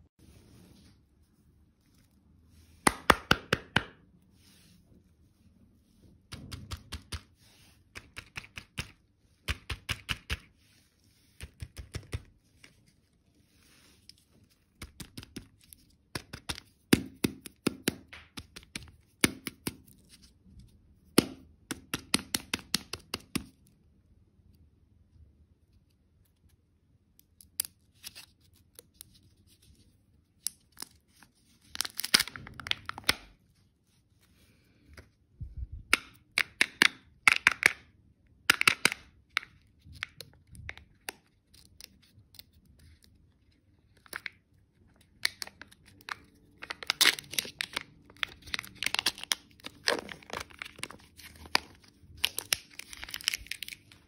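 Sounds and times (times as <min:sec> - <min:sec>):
foil wrapper crinkling and tearing: 0:30.4 - 0:33.3, 0:45.2 - 0:54.0.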